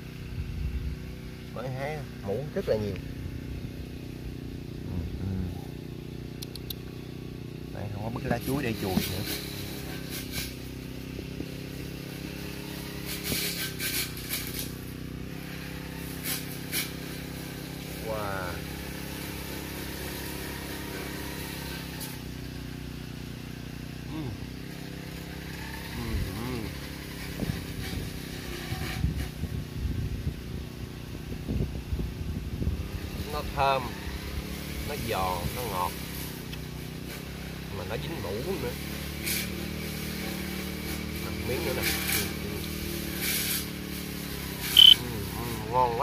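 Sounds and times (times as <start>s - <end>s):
small engine running: 0.0s - 46.0s
wind rumbling on microphone: 27.4s - 33.3s
brief crisp noises: 44.7s - 45.0s.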